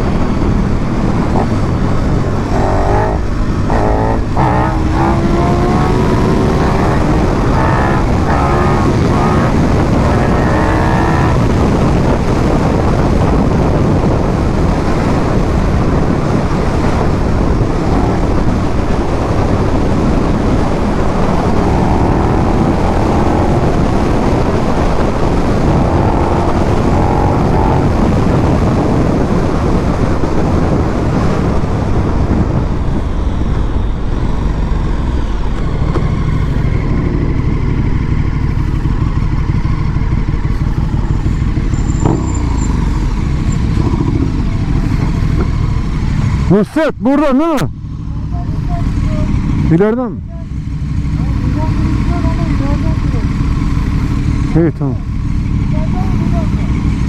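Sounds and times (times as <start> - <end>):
motorcycle engine running: 0.0 - 46.7, 47.4 - 57.0
wind rush: 0.0 - 48.4.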